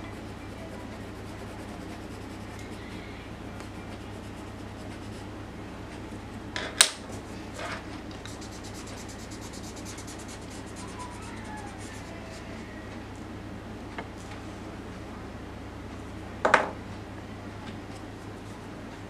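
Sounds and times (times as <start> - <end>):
blending stump rubbing paper: 0.0 - 5.3, 8.2 - 12.7
steady low hum: 0.0 - 19.0.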